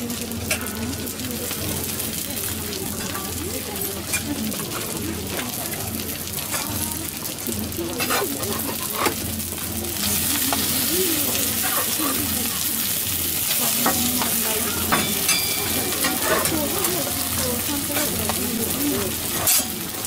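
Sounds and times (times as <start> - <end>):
food sizzling on a griddle: 0.0 - 20.0
metal spatulas scraping and tapping: 8.0 - 9.2, 19.3 - 19.8.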